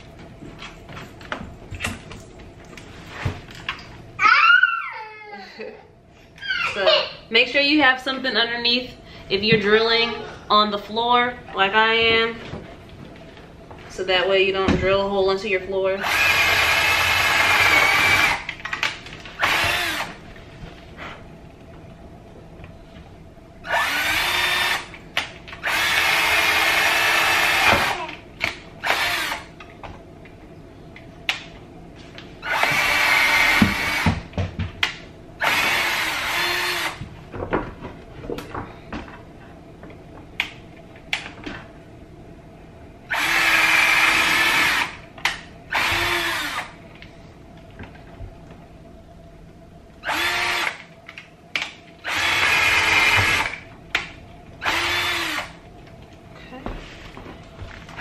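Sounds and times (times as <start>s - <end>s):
cordless drill boring wood: 16.0s - 18.5s, 19.4s - 20.2s, 23.7s - 24.9s, 25.6s - 28.0s, 28.8s - 29.5s, 32.4s - 34.1s, 35.4s - 37.0s, 43.1s - 45.0s, 45.7s - 46.7s, 50.0s - 50.8s, 52.1s - 53.6s, 54.6s - 55.6s.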